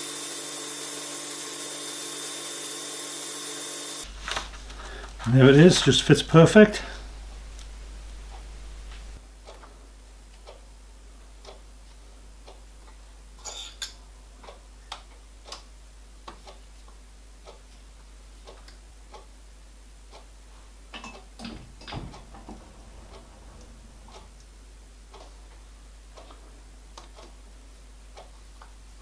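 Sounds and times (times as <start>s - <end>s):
soft ticking: 7.5s - 10.7s, 11.4s - 11.7s, 12.4s - 13.0s, 14.4s - 17.8s, 21.1s - 27.4s
metal tools clicking and tapping: 13.4s - 14.0s.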